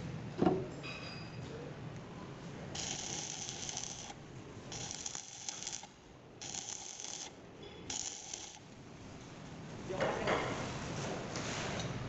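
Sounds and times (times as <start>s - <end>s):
welding arc crackling and hissing: 2.7s - 8.7s.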